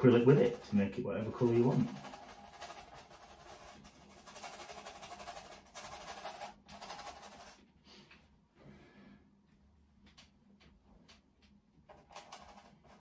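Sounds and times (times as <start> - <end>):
paintbrush scrubbing on canvas: 0.0 - 7.6.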